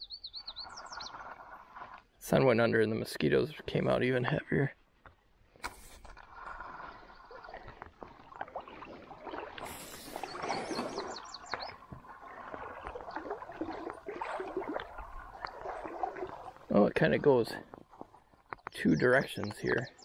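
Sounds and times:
water gurgling: 6.0s - 19.6s.

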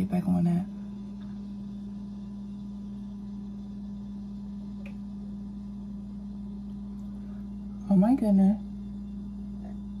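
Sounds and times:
steady low hum: 0.0s - 10.0s
faint click: 4.8s - 5.0s.

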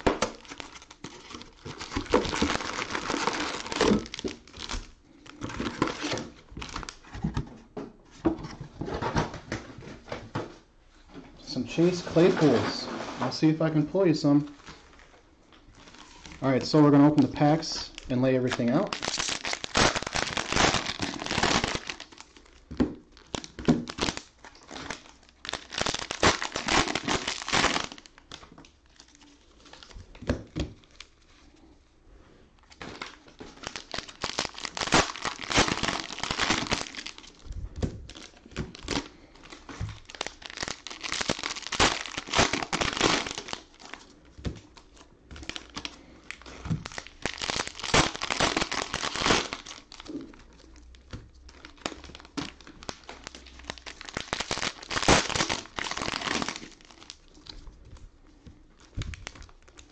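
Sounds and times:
cellophane wrappers crinkling: 0.0s - 7.2s, 11.6s - 31.7s, 32.6s - 59.9s.

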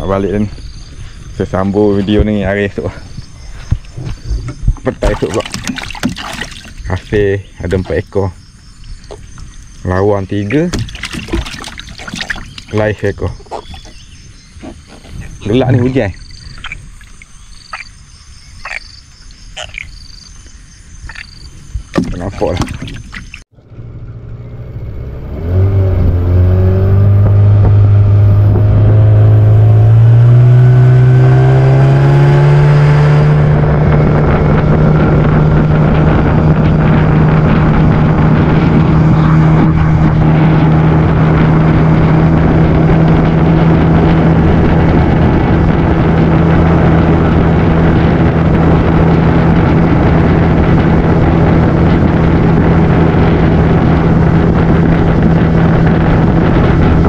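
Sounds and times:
boat motor revving up: 23.6s - 57.0s.

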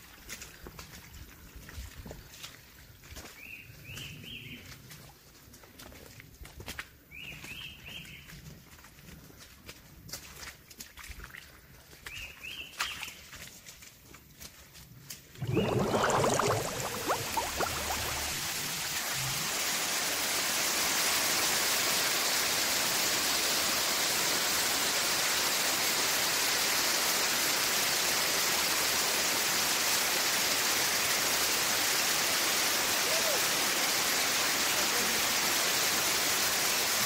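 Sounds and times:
waterfall rushing: 15.4s - 19.4s.

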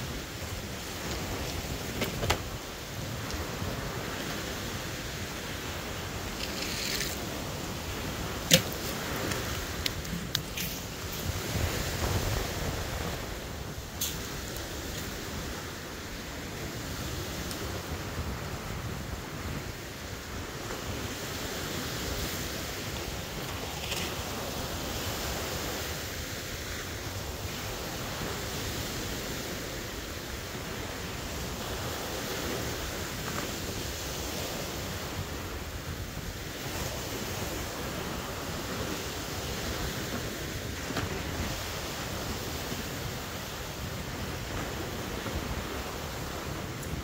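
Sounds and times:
wind buffeting microphone: 0.0s - 26.4s
surf washing on shore: 0.0s - 47.0s.

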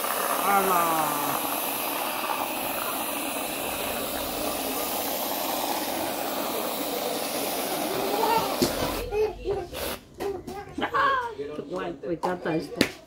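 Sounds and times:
aerosol can spraying hiss: 0.0s - 9.1s, 9.7s - 10.0s.

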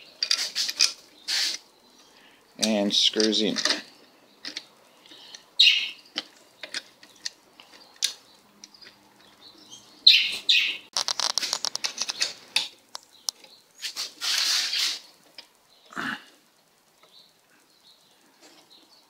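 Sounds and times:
metal and plastic clicks and scrapes: 0.1s - 1.6s, 2.6s - 4.7s, 6.1s - 9.0s, 10.9s - 13.5s.

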